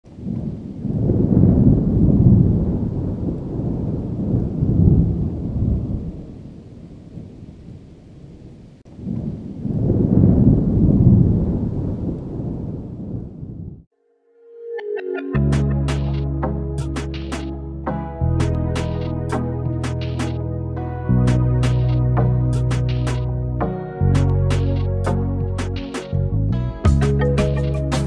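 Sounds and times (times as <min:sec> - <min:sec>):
deep rolling storm rumble: 0:00.1 - 0:13.9.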